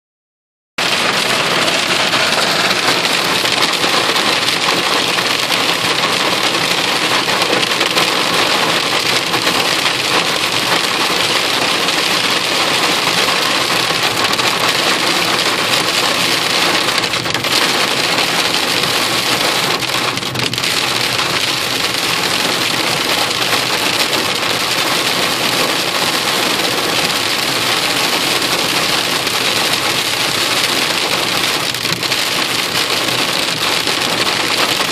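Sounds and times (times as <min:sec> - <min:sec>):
hail and rain on car roof: 0:00.8 - 0:34.9.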